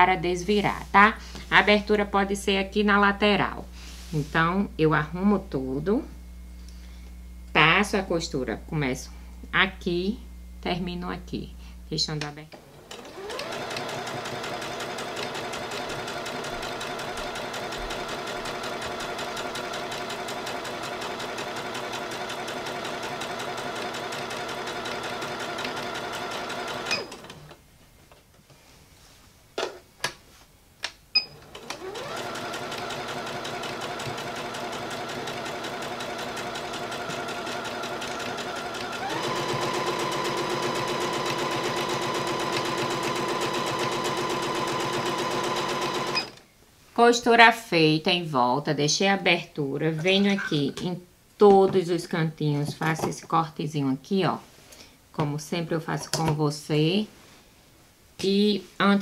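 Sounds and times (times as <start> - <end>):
sewing machine stitching: 12.6 - 27.6, 31.3 - 46.4.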